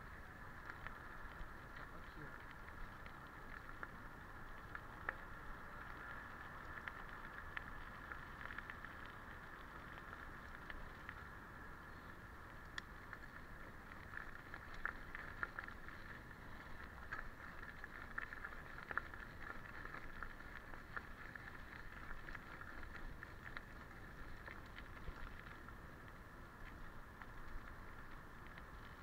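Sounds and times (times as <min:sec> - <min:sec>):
bike tyres crunching on gravel: 0:00.0 - 0:29.0
small ticks and rattles: 0:00.0 - 0:29.0.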